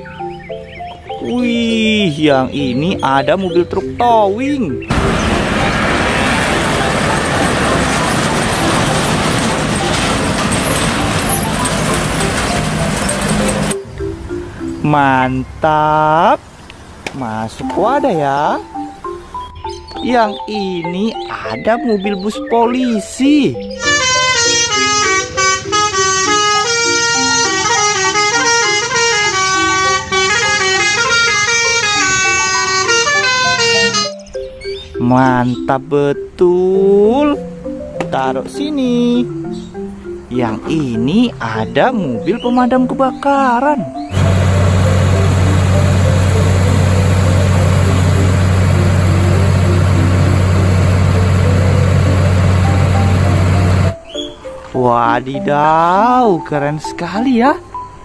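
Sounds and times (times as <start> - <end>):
road traffic noise: 0.0 - 22.3, 22.9 - 55.5
truck driving past: 4.9 - 14.8, 23.8 - 34.1, 44.1 - 54.0
bus air horns playing tune: 23.8 - 34.2, 44.1 - 53.9.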